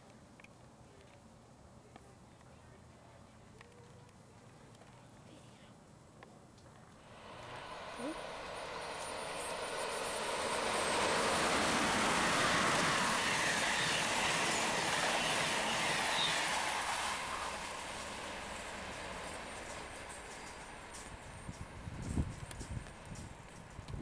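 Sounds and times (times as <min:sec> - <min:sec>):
passenger train passing: 0:07.0 - 0:24.0.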